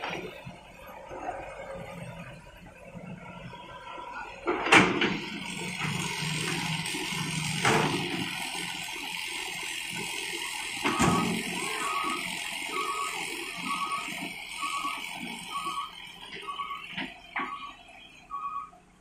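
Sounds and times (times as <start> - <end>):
excavator engine running: 0.0 - 19.0
short high beep: 15.6 - 18.8.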